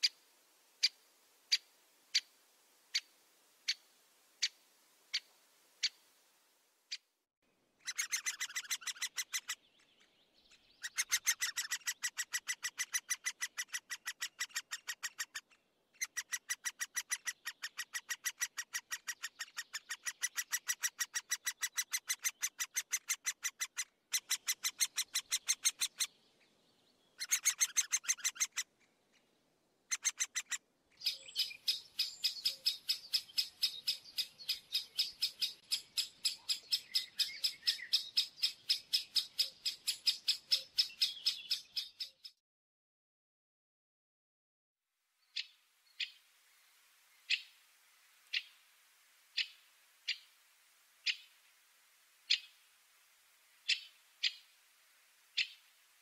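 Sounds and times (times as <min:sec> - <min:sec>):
woodpecker calling: 0:07.8 - 0:26.2, 0:27.2 - 0:29.3, 0:29.9 - 0:42.4, 0:45.3 - 0:46.2, 0:47.3 - 0:47.6, 0:48.3 - 0:48.6, 0:49.4 - 0:50.3, 0:51.0 - 0:51.4, 0:52.3 - 0:52.6, 0:53.6 - 0:54.5, 0:55.4 - 0:55.7.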